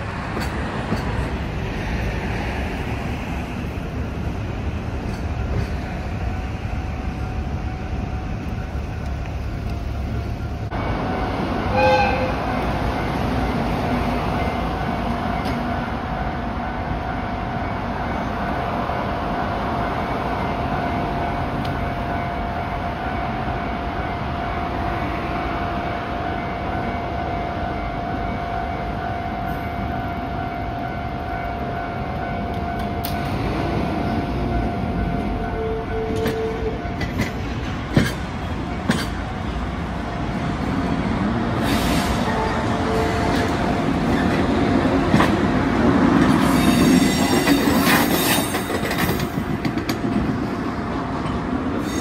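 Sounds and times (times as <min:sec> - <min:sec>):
train running on rails: 0:00.0 - 0:52.0.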